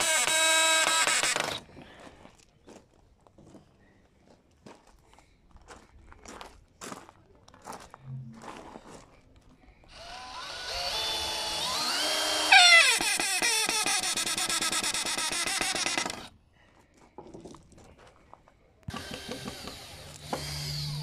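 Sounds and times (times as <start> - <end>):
power drill boring into wood: 0.0 - 1.6, 9.9 - 16.3, 18.9 - 21.0.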